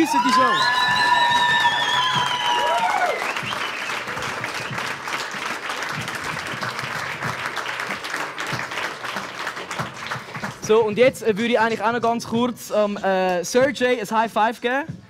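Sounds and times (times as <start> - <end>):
audience clapping: 0.0 - 12.0.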